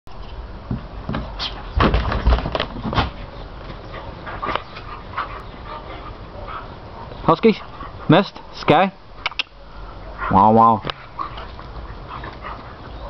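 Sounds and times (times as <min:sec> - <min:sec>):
loud thumps: 0:00.7 - 0:03.2
dog vocal sounds: 0:09.6 - 0:13.0.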